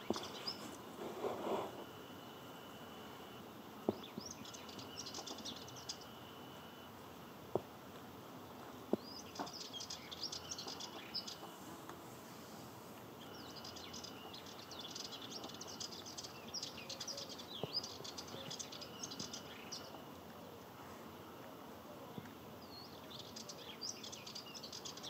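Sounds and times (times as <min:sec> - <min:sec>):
warbler chattering song: 0:00.0 - 0:00.8, 0:03.9 - 0:06.3, 0:09.0 - 0:11.5, 0:13.2 - 0:20.1, 0:22.6 - 0:25.0.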